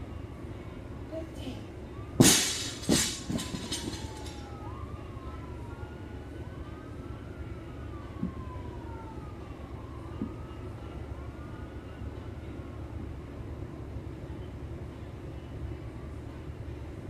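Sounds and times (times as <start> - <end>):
faint rising and falling wail: 2.0 - 13.0
barbell thudding on floor: 2.2 - 4.0.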